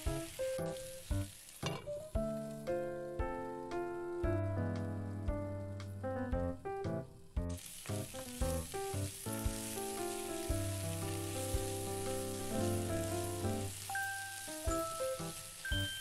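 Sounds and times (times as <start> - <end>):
spatula turning food in pan: 0.0 - 2.1, 7.6 - 16.0
potatoes sizzling in oil: 0.0 - 4.3, 7.2 - 16.0
background music with steady beat: 2.0 - 7.6, 8.6 - 10.9.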